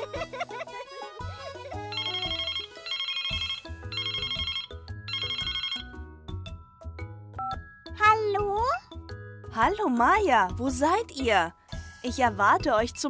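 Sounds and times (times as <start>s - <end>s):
light children's music: 0.0s - 13.0s
electronic telephone ringtone: 1.9s - 6.0s.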